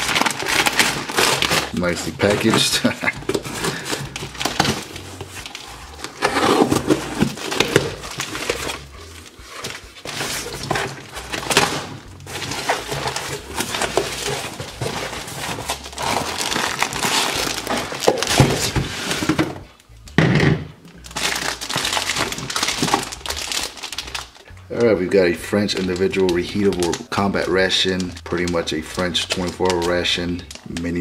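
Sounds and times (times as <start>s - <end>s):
packing tape tearing: 0.0s - 19.4s, 21.0s - 24.8s
paper and plastic crinkling: 0.0s - 20.0s, 20.9s - 31.0s.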